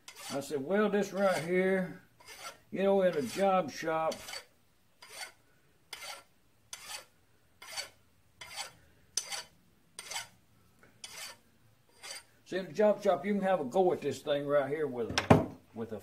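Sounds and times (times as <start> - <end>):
file rasping on metal: 0.0 - 1.5, 2.2 - 3.5, 4.1 - 10.4, 11.0 - 12.3.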